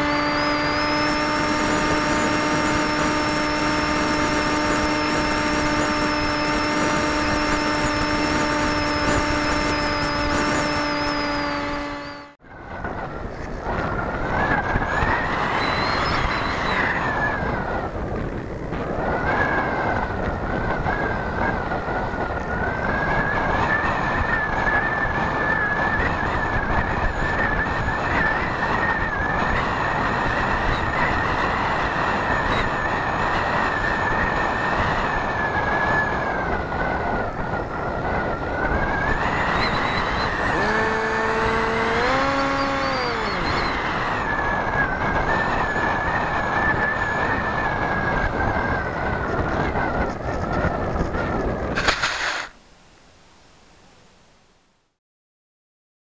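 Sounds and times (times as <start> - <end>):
steady high whistle: 0.0 - 12.4, 14.7 - 17.5
pitched hum: 0.0 - 54.4
rushing airflow: 36.8 - 52.6.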